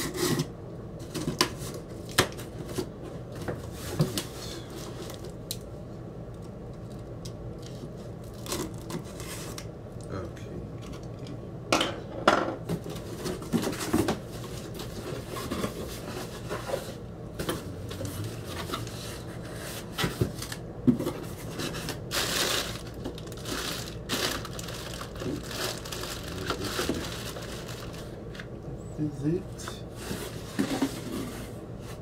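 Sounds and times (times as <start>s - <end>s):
plastic packing rustling: 12.8s - 28.5s.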